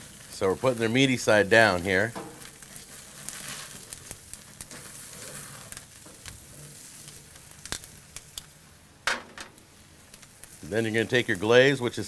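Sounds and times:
chicken sizzling on grill: 0.0s - 12.0s
fat flaring in flames: 0.0s - 12.0s
sharp pops and clicks: 7.1s - 10.6s.

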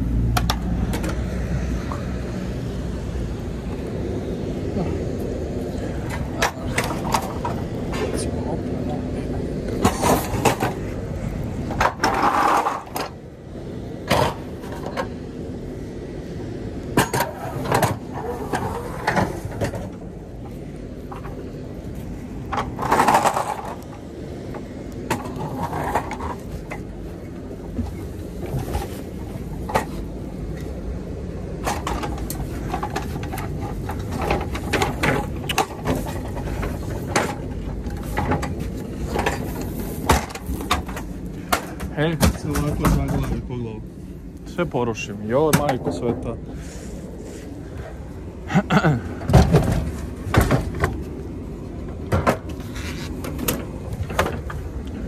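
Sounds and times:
steady low hum: 0.0s - 55.0s
metal boards scraping: 11.7s - 13.1s
metal boards knocking and clanking: 49.3s - 51.0s.

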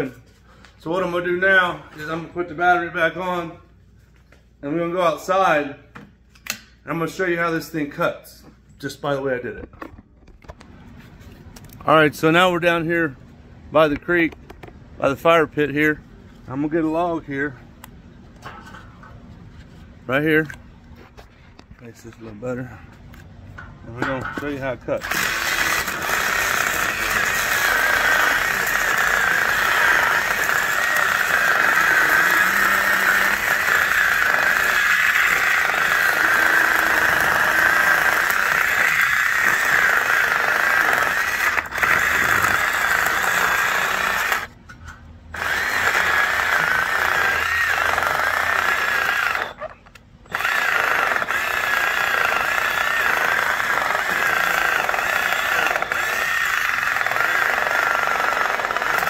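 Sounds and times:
chainsaw cutting log: 25.0s - 44.5s, 45.3s - 49.7s, 50.3s - 59.0s.

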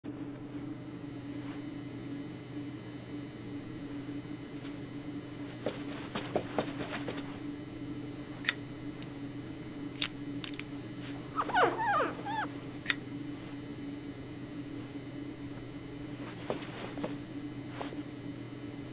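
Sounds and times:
steady low hum: 0.1s - 18.9s
squeaky whine: 11.2s - 12.6s.

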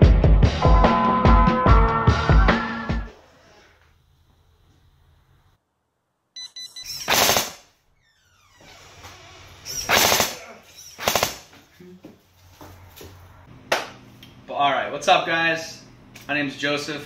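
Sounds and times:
buzzer beeping: 6.4s - 7.1s
airsoft gun full-auto bursts: 7.1s - 7.7s, 9.8s - 10.4s, 11.0s - 11.5s.

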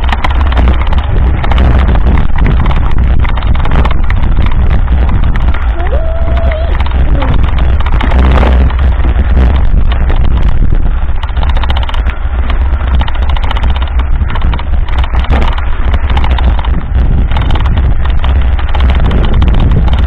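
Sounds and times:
mountain bike clattering: 0.0s - 20.0s
wind buffeting microphone: 0.0s - 20.0s.

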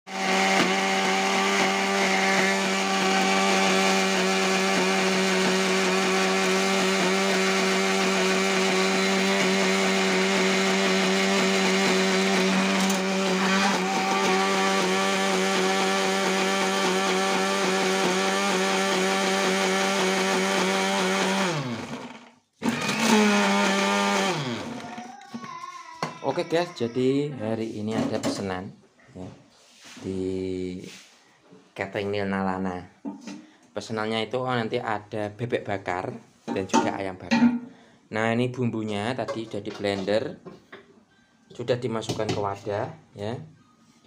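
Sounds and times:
electric blender grinding: 0.1s - 25.4s.

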